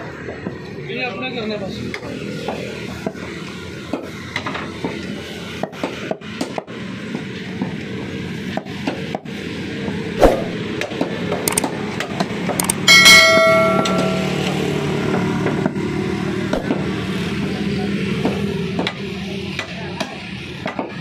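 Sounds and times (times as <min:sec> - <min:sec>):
bell-like chime: 0:12.9 - 0:14.9.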